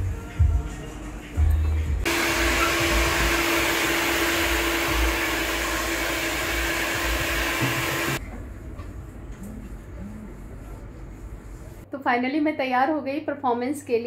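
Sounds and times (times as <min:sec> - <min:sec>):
hair dryer blowing: 0:02.0 - 0:08.2.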